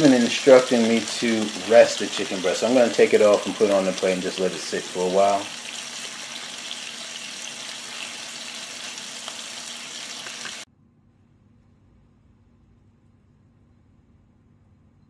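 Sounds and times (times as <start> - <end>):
electric grill hissing and humming: 0.0 - 10.7.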